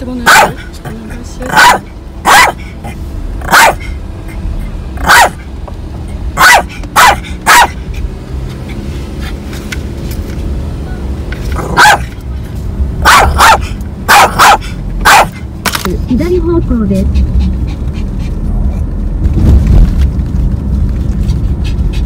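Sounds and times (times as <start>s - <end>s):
car rumble on road: 0.0s - 22.0s
small dog barking: 0.2s - 0.7s, 1.5s - 2.7s, 3.4s - 4.0s, 5.0s - 5.4s, 6.4s - 7.8s, 11.7s - 12.2s, 13.0s - 15.4s.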